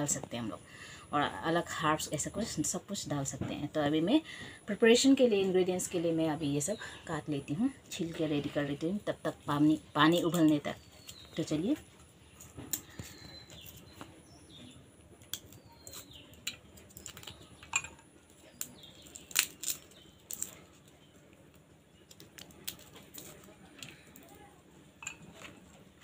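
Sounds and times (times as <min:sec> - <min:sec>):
garlic skins crackling: 0:07.4 - 0:26.0
knife scraping garlic: 0:15.3 - 0:17.4.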